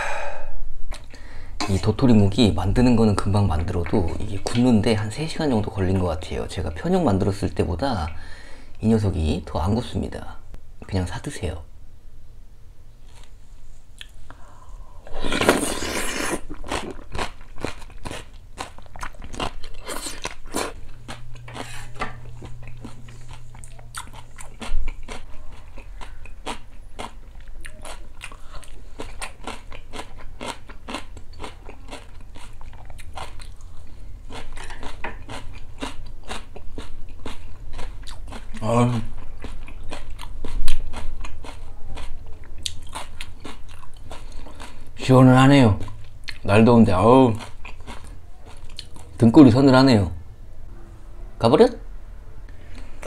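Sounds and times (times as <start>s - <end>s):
person slurping soup: 15.0s - 16.6s
crunching and chewing: 15.1s - 45.0s, 47.3s - 49.2s.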